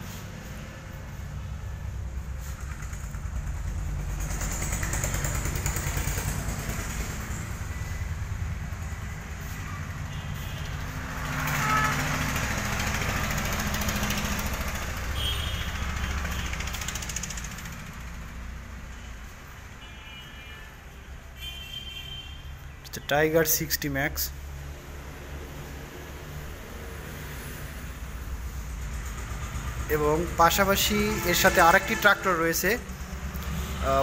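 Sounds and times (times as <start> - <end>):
motor engine running: 0.4 - 9.6, 11.9 - 18.4.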